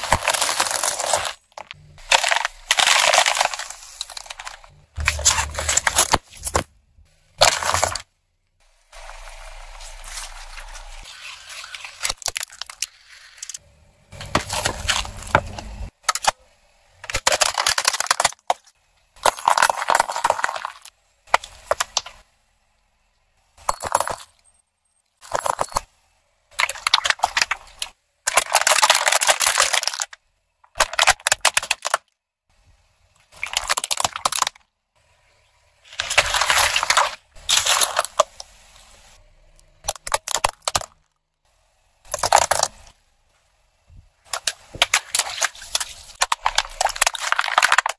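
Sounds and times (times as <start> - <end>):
tyre crushing objects: 0.0 - 6.7, 7.4 - 8.0, 14.2 - 16.4, 35.8 - 38.4.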